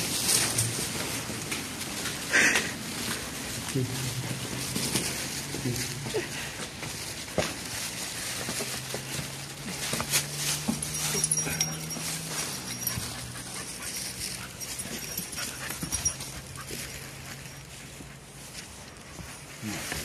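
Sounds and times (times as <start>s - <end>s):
paws scuffing and clicking: 0.0s - 20.0s
dogs panting: 8.5s - 19.0s.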